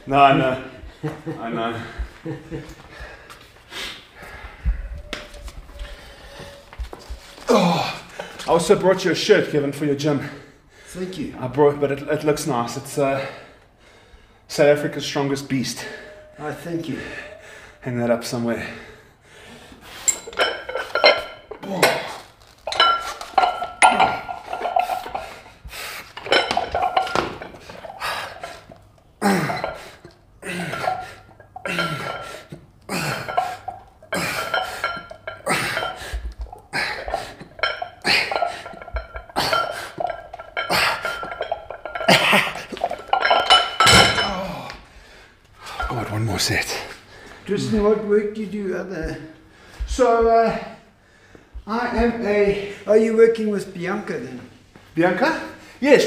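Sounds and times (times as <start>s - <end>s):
metal gym weights clanking: 20.0s - 25.5s, 26.2s - 44.8s.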